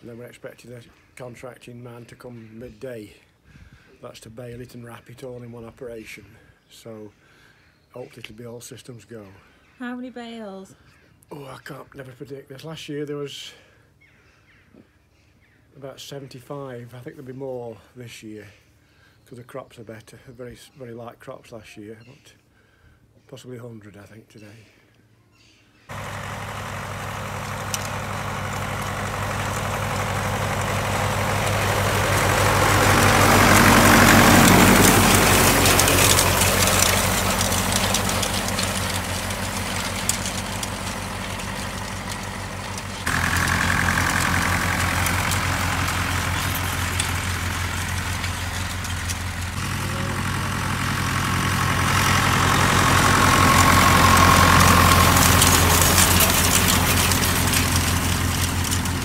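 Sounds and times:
tractor engine running: 25.9s - 59.0s.

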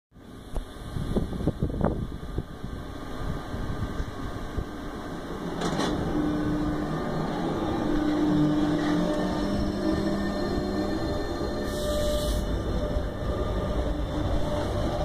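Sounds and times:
electric train hum: 0.2s - 15.0s
train rumbling: 0.2s - 15.0s
train brake hiss: 11.4s - 12.7s.

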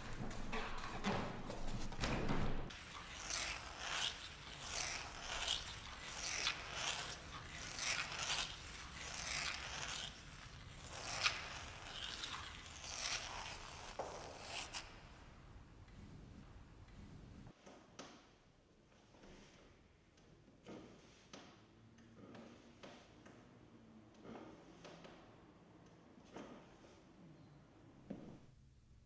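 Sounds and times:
pencil scratching on a wall: 2.8s - 15.0s.

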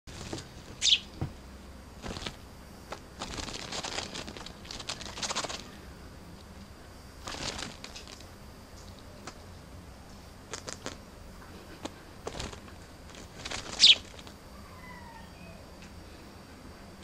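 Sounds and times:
bird flapping: 0.1s - 1.2s, 2.0s - 5.8s, 7.2s - 8.3s, 10.5s - 11.0s, 11.7s - 14.4s.

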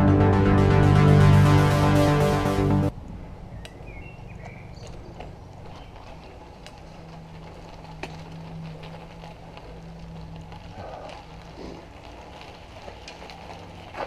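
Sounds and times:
bicycle tyres rolling on gravel: 3.4s - 14.0s.

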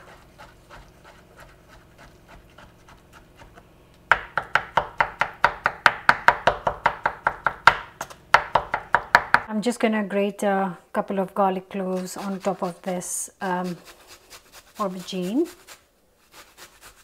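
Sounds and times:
knife chopping on wooden board: 1.2s - 9.5s.

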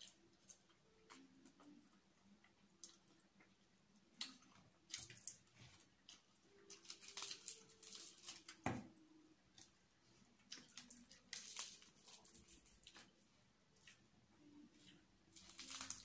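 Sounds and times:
fried chicken pulled apart and chewed: 15.3s - 16.0s.

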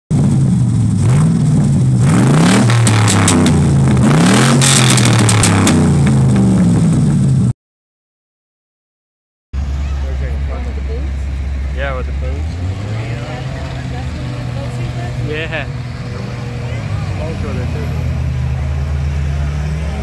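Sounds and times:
diesel truck engine revving: 0.1s - 7.5s, 9.6s - 20.0s
sharp cracks: 2.1s - 6.6s.

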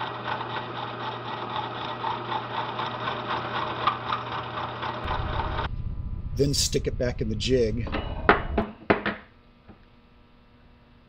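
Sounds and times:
hole saw teeth chatter: 0.0s - 5.7s
milling machine motor hum: 0.0s - 6.4s.

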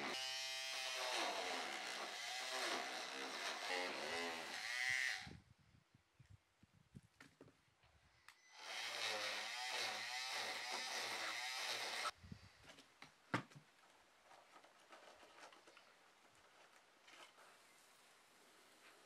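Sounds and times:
oscillating multi-tool cutting: 0.0s - 5.3s, 8.5s - 12.1s.

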